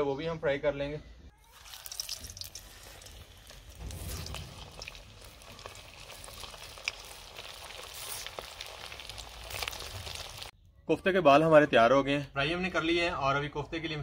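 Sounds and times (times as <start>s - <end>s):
food deep-frying in hot oil: 1.4s - 10.6s.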